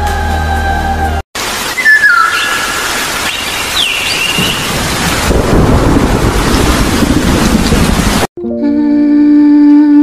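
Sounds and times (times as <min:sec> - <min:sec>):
heavy rain: 0:01.4 - 0:08.3
low rumble of thunder: 0:04.4 - 0:08.3.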